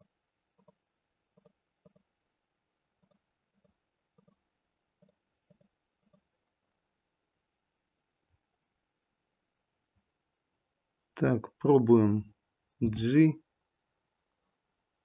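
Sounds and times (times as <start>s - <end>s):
faint computer mouse clicks: 0.0s - 0.8s, 1.4s - 2.1s, 3.0s - 4.4s, 5.0s - 6.3s.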